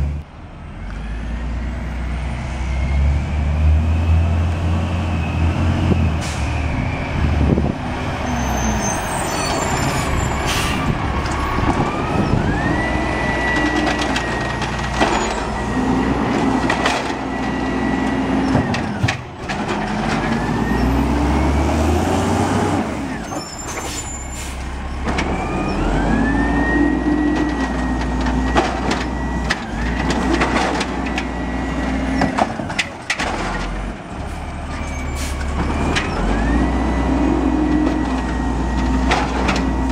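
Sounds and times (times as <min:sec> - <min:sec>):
diesel engine revving: 0:00.0 - 0:39.9
carts slammed and dumped: 0:08.8 - 0:21.0, 0:26.8 - 0:36.5, 0:37.6 - 0:39.9.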